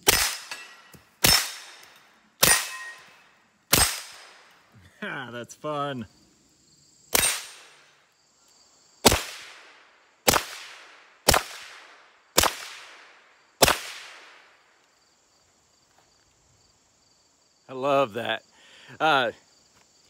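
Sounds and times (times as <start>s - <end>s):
suppressed pistol shots: 0.0s - 3.0s, 3.7s - 4.5s, 7.1s - 7.8s, 9.0s - 14.4s.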